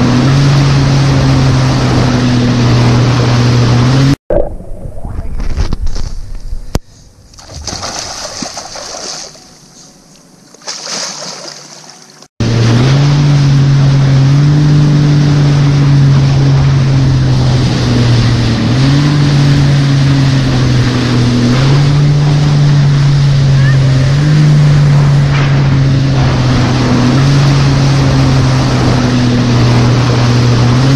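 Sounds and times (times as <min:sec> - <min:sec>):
jet ski engine running: 0:00.0 - 0:04.2, 0:11.4 - 0:30.9
water and wind rushing: 0:00.0 - 0:30.9.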